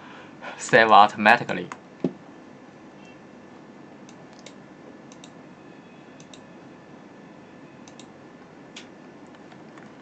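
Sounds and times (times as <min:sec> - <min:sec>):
computer mouse clicking: 0:04.1 - 0:05.4, 0:06.2 - 0:06.4, 0:07.8 - 0:08.1.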